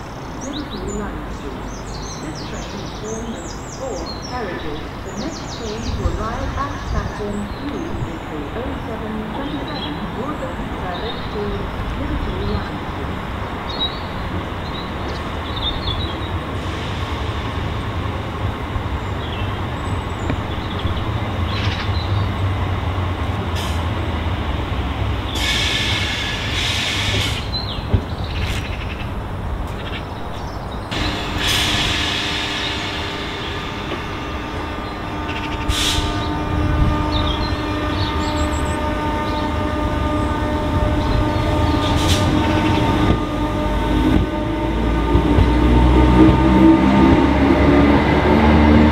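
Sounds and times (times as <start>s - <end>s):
train wheels rumbling on rail: 0.0s - 48.9s
train motor whine: 30.9s - 48.9s.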